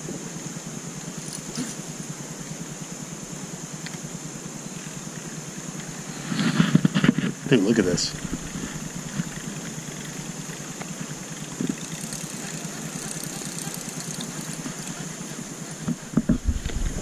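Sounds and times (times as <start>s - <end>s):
outdoor background noise: 0.0s - 17.0s
high-pitched hum: 7.6s - 17.0s.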